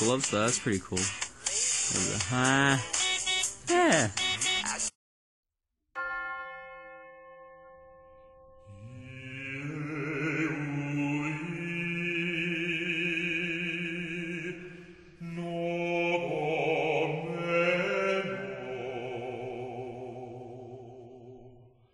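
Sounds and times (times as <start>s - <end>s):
chant-like singing with vibrato: 8.7s - 21.8s.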